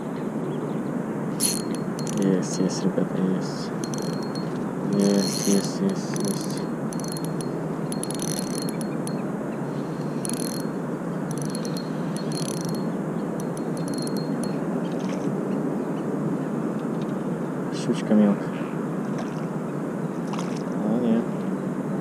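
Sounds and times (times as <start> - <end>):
fishing reel ticking: 1.4 - 2.7, 3.8 - 9.2, 9.8 - 14.6.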